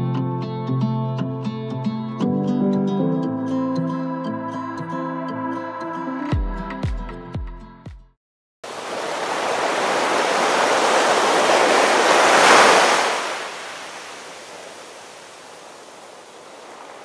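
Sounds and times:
ocean wave washing in: 8.7s - 17.0s.

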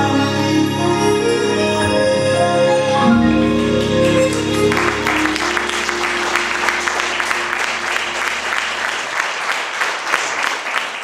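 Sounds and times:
music final held chord: 1.8s - 9.1s
audience applauding: 3.8s - 11.0s.

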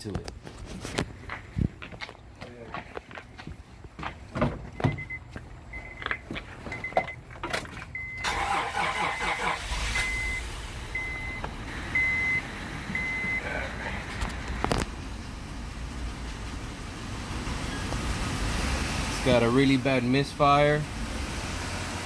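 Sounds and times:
car engine cranking: 5.8s - 22.0s.

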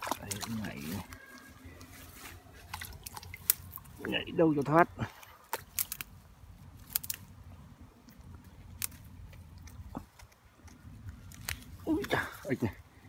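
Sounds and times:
dry stems and grass crackling: 0.0s - 13.0s.

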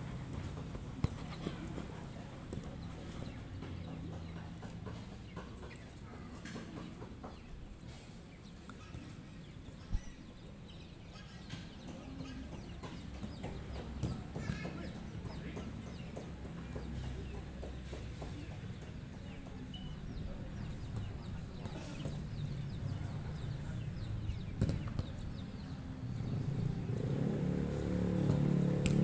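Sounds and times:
bird calls: 8.3s - 26.8s
ball being kicked: 24.6s - 25.2s.

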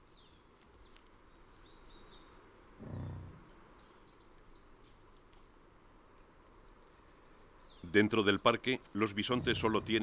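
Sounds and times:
birds chirping: 0.0s - 5.2s, 5.8s - 10.0s
bison grunting: 2.8s - 3.6s, 9.2s - 10.0s.

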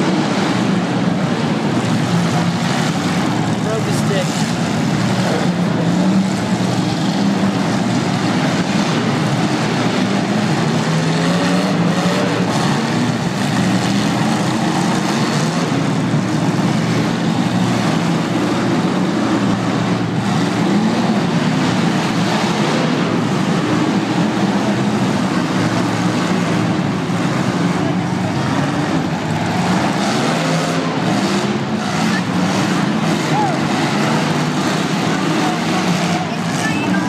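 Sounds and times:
car engines revving: 0.0s - 37.0s.

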